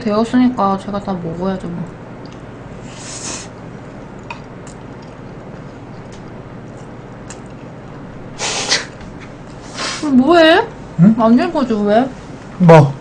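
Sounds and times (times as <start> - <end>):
breath hissing through nose: 2.8 - 3.5, 8.4 - 9.0, 9.6 - 10.1.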